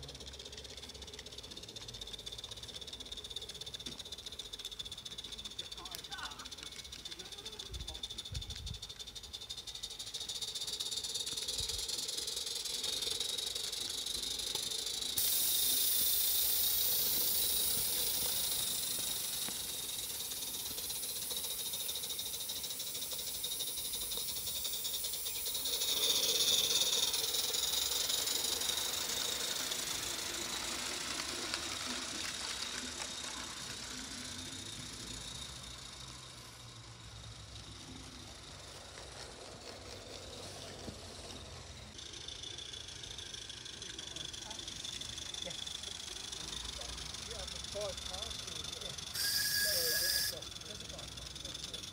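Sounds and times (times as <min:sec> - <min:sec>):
steam hissing: 0:00.0 - 0:51.9
wheels rattling on track: 0:00.0 - 0:51.9.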